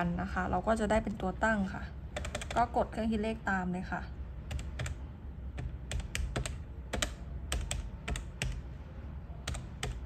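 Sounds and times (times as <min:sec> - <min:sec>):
low steady hum: 0:00.0 - 0:10.0
calculator keys clicking: 0:02.2 - 0:02.6, 0:05.6 - 0:08.6, 0:09.5 - 0:10.0.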